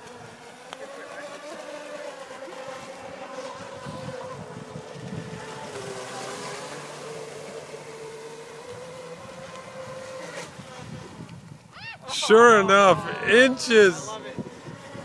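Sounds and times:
distant high motor whine: 0.0s - 11.2s.

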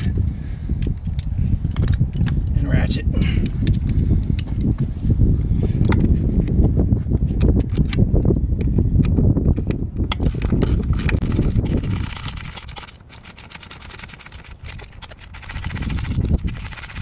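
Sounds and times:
socket ratchet clicking: 9.0s - 17.0s.

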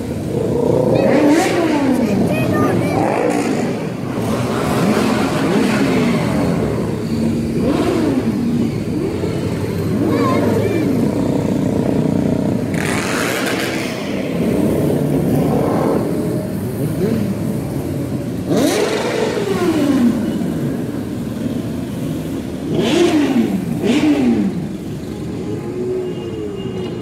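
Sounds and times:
motorcycles revving past: 0.0s - 25.8s.

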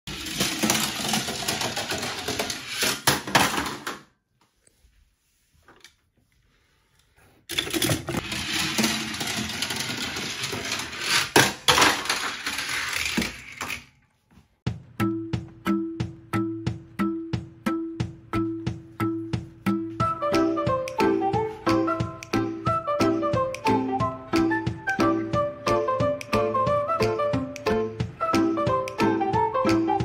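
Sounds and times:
toy car rattling along plastic track: 0.1s - 4.0s, 7.5s - 13.9s.

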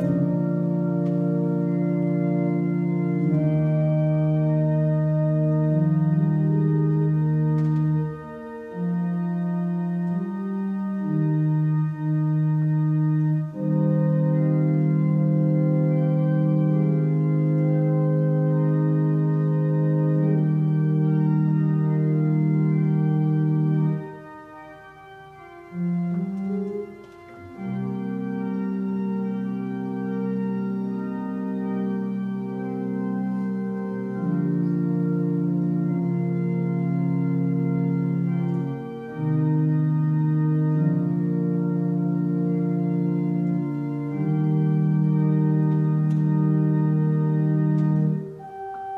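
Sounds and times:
church organ chords: 0.0s - 48.9s.

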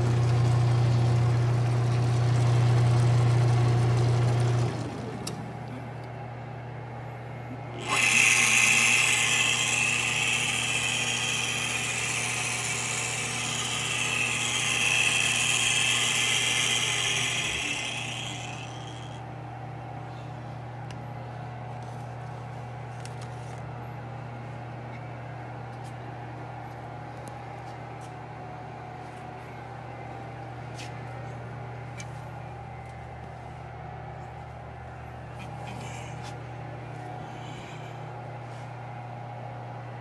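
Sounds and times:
electric drive humming: 0.0s - 40.0s
milling head whining: 7.7s - 19.2s.

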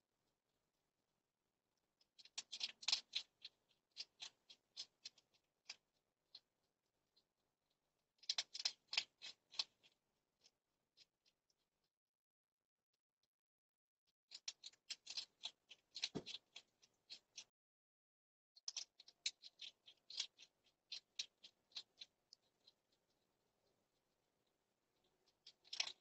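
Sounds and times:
hedgehog crunching dry food: 2.0s - 7.3s, 8.2s - 11.4s, 14.3s - 17.5s, 18.6s - 23.2s, 25.0s - 26.0s.

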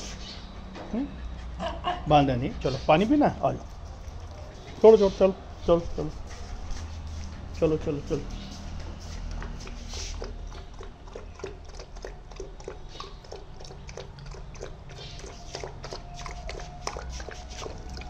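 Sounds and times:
puppy lapping water: 2.3s - 5.4s, 8.8s - 18.0s.

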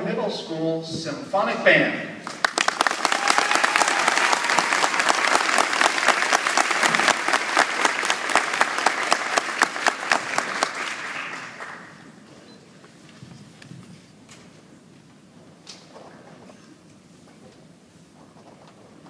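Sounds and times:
audience applauding: 2.2s - 12.3s.

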